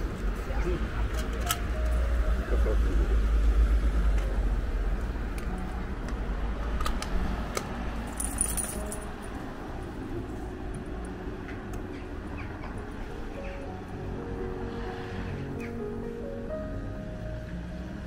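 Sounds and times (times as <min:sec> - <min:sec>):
light metallic clinks: 0:08.1 - 0:09.3
high jingle: 0:08.1 - 0:09.4.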